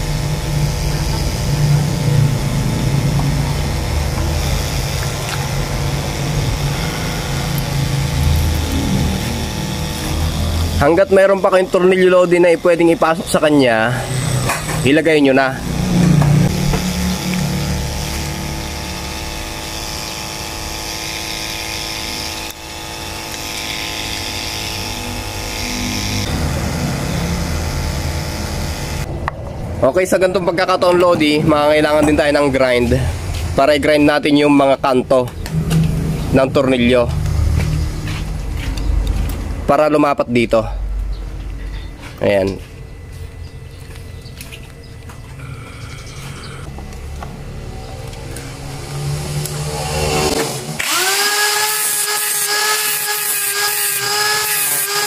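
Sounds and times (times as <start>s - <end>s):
engine humming steadily: 0.0s - 11.8s, 34.8s - 51.0s
motor humming: 0.0s - 29.7s, 40.9s - 55.0s.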